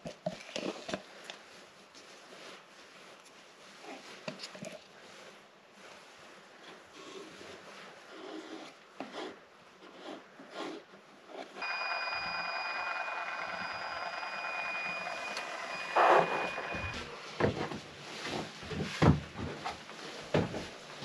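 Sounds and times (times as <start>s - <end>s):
soft handling sounds: 0.2s - 21.0s
caulking gun motor whining: 11.6s - 17.2s.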